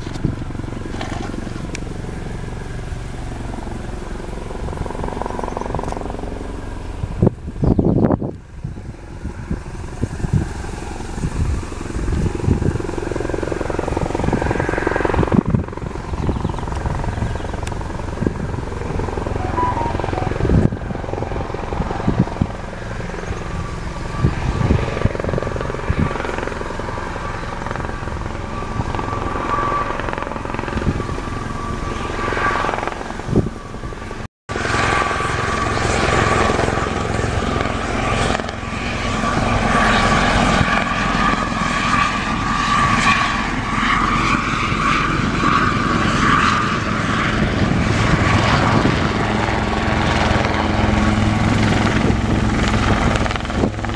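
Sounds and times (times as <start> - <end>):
helicopter rotor and engines: 0.0 - 53.9
steady high whine: 8.8 - 43.9.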